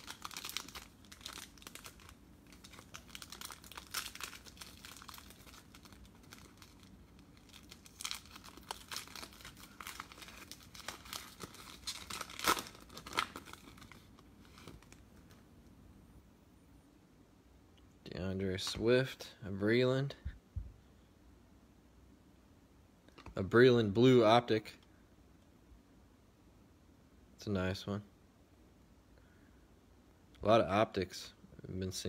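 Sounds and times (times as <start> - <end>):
foil wrapper tearing and crinkling: 0.0 - 15.0.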